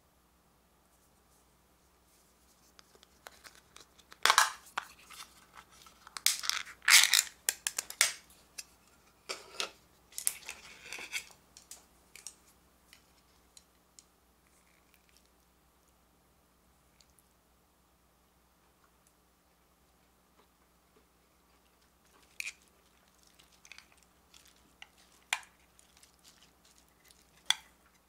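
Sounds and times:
metal lid scraping and tearing: 6.2s - 7.3s, 9.3s - 11.3s.

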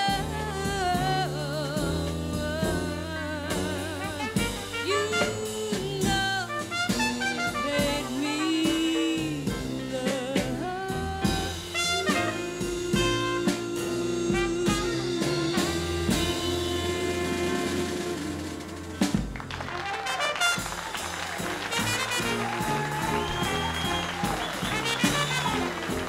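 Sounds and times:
woman singing with vibrato: 0.0s - 18.9s
bass: 0.0s - 26.0s
drums: 0.0s - 26.0s
trumpet: 0.0s - 26.0s.

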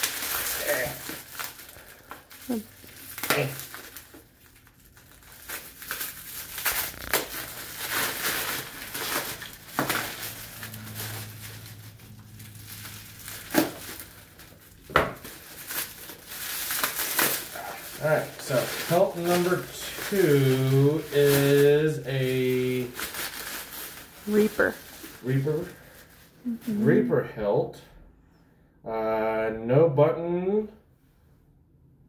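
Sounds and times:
bubble wrap crinkling: 0.0s - 27.1s.

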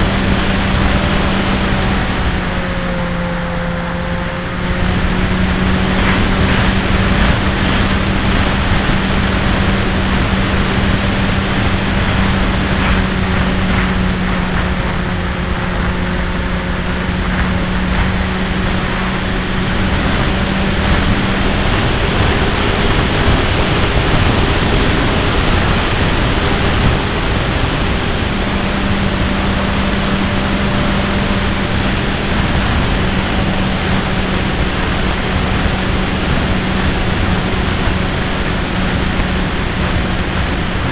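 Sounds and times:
model aeroplane engine droning: 0.0s - 40.9s
wind rush: 0.0s - 40.9s.

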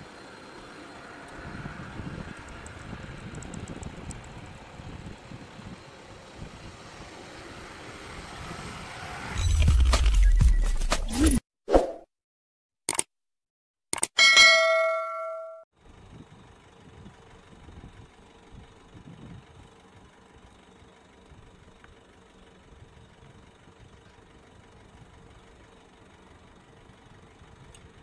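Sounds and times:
bright bell ding: 14.2s - 15.7s.

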